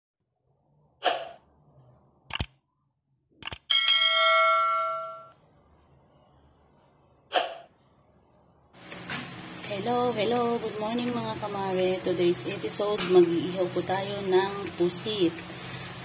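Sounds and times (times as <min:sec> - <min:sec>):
sharp clicks: 0:02.3 - 0:02.6, 0:03.4 - 0:03.7
bright bell chime: 0:03.7 - 0:05.4.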